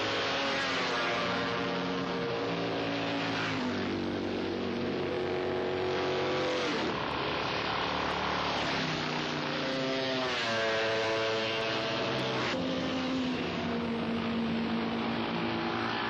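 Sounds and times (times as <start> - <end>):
motorcycle engine at high revs: 0.0 - 16.0.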